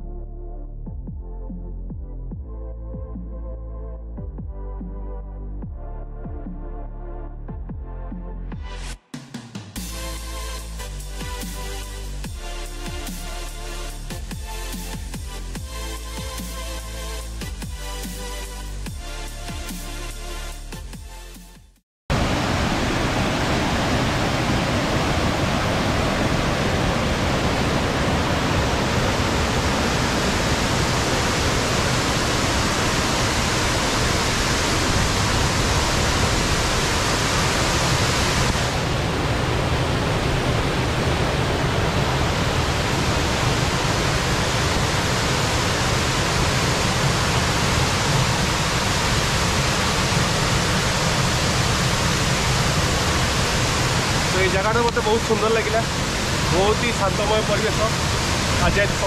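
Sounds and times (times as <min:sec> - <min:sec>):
waterfall rushing: 0:22.1 - 0:59.0.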